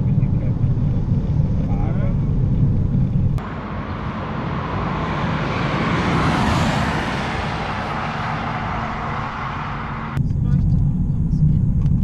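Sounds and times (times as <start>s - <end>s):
race car driving past: 3.4s - 10.2s.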